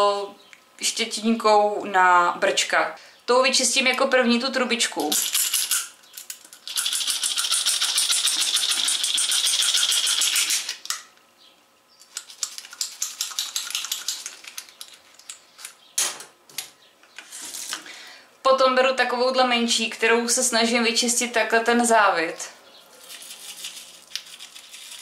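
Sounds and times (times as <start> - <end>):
brush scrubbing inside tube: 23.0 - 25.0.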